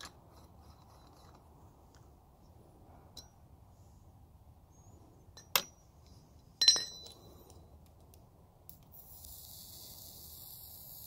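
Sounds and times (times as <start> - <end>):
metallic clinks: 5.3 - 7.7.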